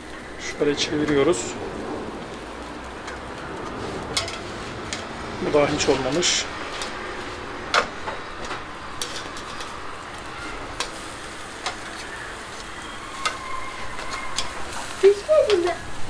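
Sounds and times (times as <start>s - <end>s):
bread sizzling on a grill: 0.0s - 16.0s
metal tongs clicking on grate: 4.2s - 5.0s, 14.0s - 14.8s.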